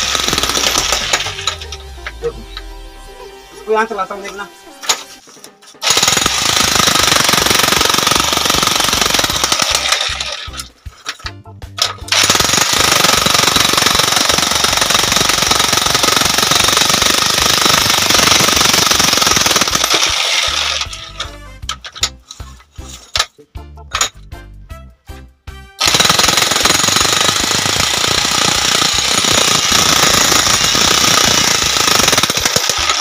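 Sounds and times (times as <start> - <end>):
demolition hammer chiselling rock: 0.0 - 1.6, 5.8 - 10.4, 12.1 - 20.7, 25.8 - 33.0.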